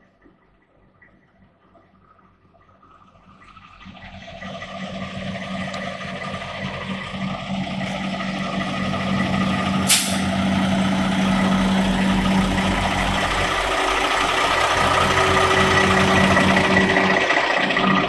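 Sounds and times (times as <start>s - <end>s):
diesel truck engine idling: 0.0s - 18.0s
sharp air hiss: 9.9s - 10.3s.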